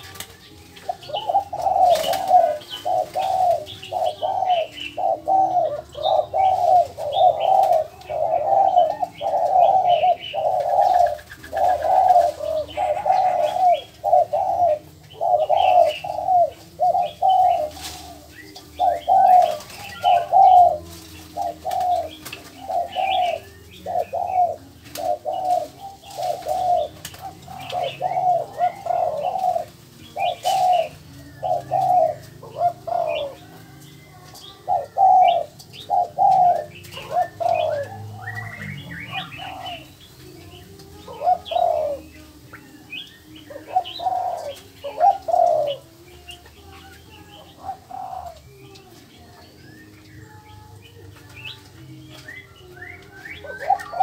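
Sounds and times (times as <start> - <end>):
birds calling low repeated notes: 0.0 - 54.0.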